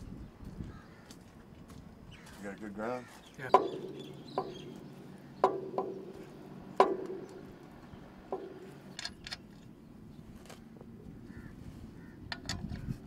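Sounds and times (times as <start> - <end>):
low steady hum: 3.4 - 13.0
metal tool clanking on steel: 3.5 - 9.6, 12.3 - 13.0.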